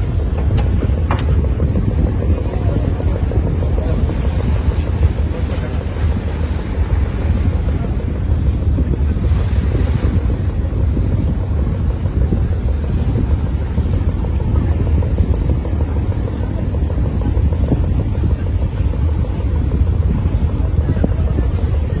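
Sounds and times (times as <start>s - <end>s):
boat engine running: 0.0s - 22.0s
wind buffeting microphone: 0.0s - 22.0s.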